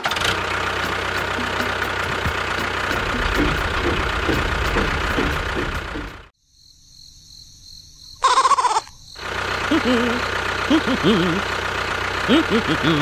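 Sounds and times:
engine running with knocking beat: 0:00.0 - 0:06.3, 0:09.2 - 0:13.0.

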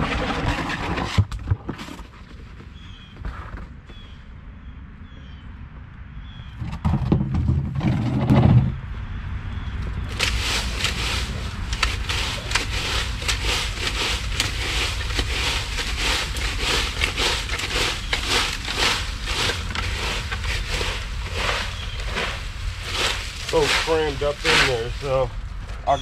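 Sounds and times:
steady low rumble: 0:07.2 - 0:26.0
dry leaves crunching and scraping: 0:10.1 - 0:26.0.

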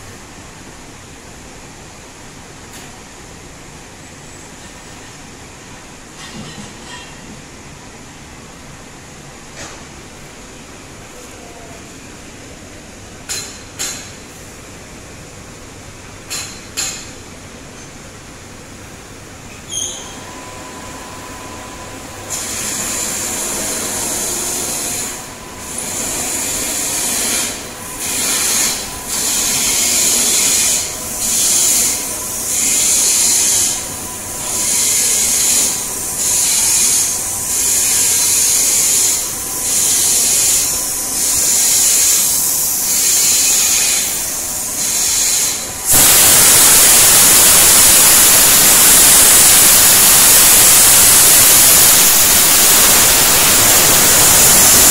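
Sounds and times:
compressed air hissing: 0:22.2 - 0:54.9.

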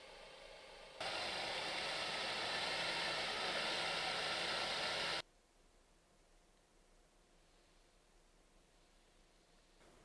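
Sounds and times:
car running with rushing hiss: 0:00.0 - 0:05.2.

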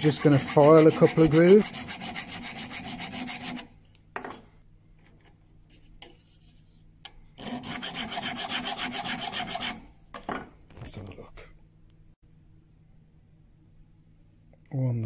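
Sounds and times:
metal file rasping on steel: 0:00.0 - 0:03.7, 0:07.4 - 0:09.9.

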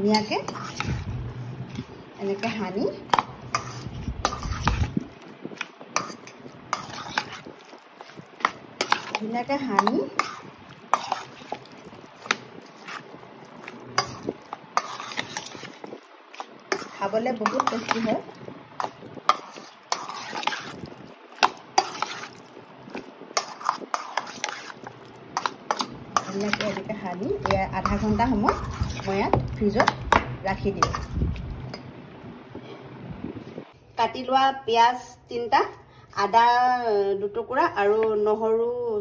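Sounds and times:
wet squelches of marinating chicken: 0:00.1 - 0:30.2.

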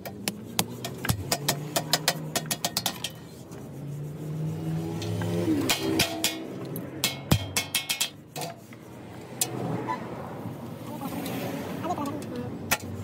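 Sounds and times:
hammer tapping steel sheet: 0:00.0 - 0:03.2, 0:05.0 - 0:08.6.

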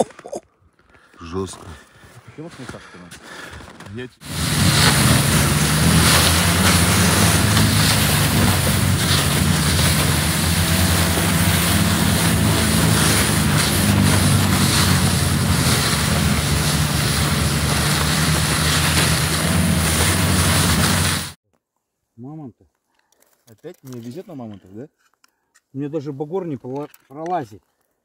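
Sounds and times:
snowmobile engine running: 0:04.2 - 0:21.4.

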